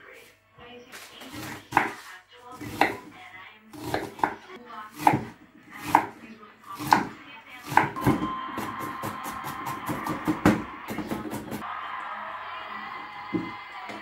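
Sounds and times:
knife chopping on wooden board: 1.3 - 2.0, 2.6 - 3.0, 3.8 - 6.2, 6.8 - 8.2.

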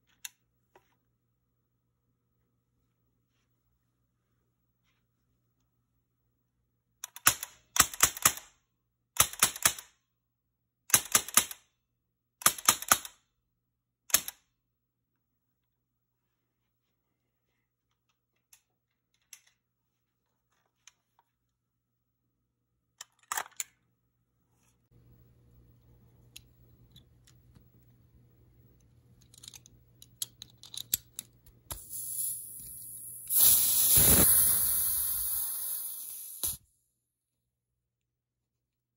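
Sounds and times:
gas hissing: 31.7 - 36.6.

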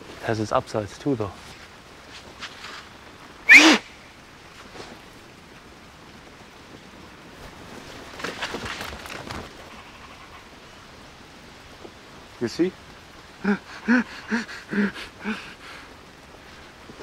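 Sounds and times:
bodies dropping onto dry leaves: 7.4 - 9.7.

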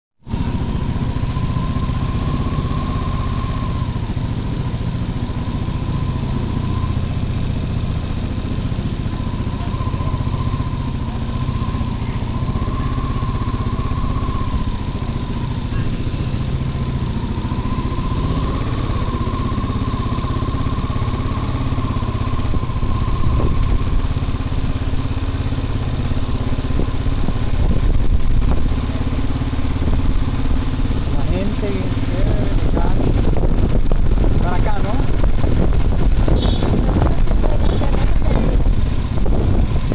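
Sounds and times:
motorcycle engine rumbling: 0.2 - 39.9
thin engine whine: 0.2 - 39.9.

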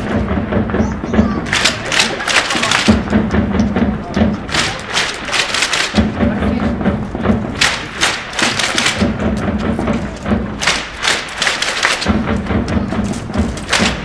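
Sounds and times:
drums beating a rhythm: 0.0 - 14.0
crowd clapping: 1.0 - 6.3, 7.5 - 14.0.

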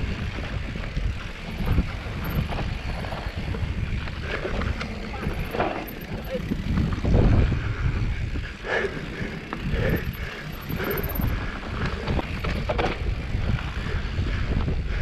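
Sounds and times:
tyres rumbling on dirt: 0.0 - 14.6
bike clicks and rattles: 0.0 - 15.0
wind buffeting microphone: 0.0 - 15.0.

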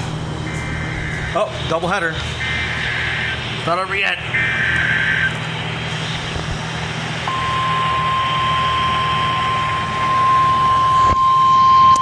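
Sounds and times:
low hum: 0.0 - 3.6, 4.2 - 12.0
steady pure alarm tone: 0.2 - 12.0
warbling data screech: 0.5 - 1.8, 2.4 - 5.4.

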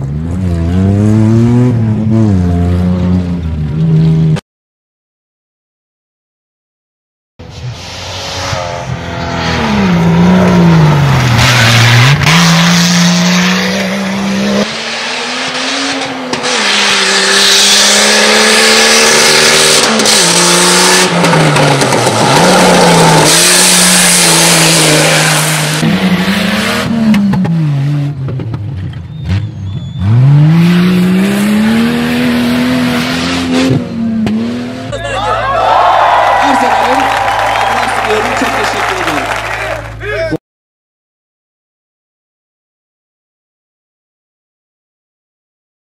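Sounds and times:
engine revving hard: 7.8 - 27.2, 29.3 - 34.9.

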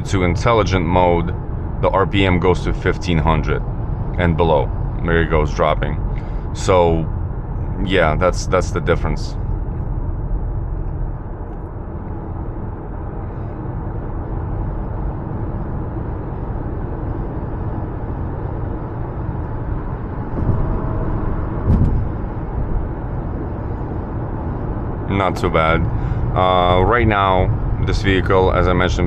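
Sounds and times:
car engine at low revs: 0.0 - 29.0
road and tyre noise: 0.0 - 29.0
brief thump: 21.6 - 22.1.

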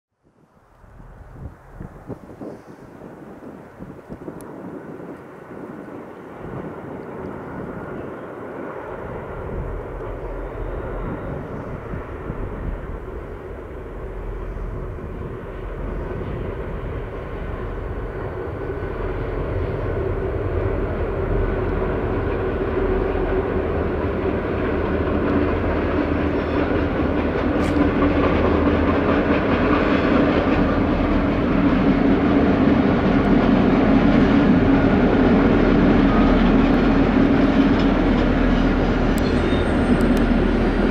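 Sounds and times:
diesel locomotives droning: 0.4 - 40.9.

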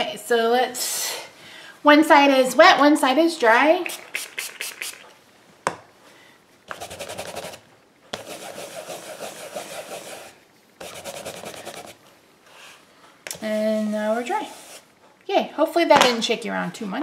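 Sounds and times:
rubber stamp scrubbing on pads: 6.7 - 12.0.

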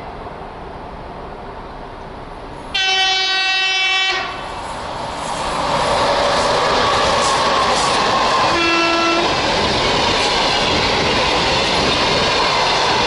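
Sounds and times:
approaching train noise: 0.0 - 13.0
locomotive horn blast: 2.8 - 4.4, 8.5 - 9.3.

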